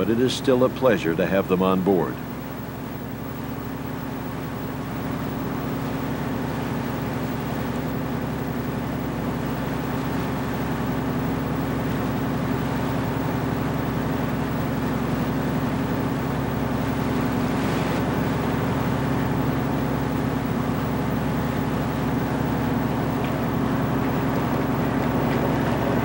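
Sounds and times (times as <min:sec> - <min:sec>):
boat diesel engine drone: 0:00.0 - 0:26.0.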